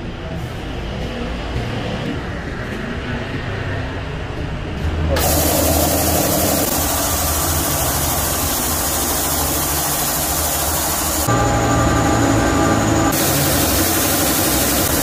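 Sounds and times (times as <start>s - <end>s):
air compressor running: 5.1s - 15.0s.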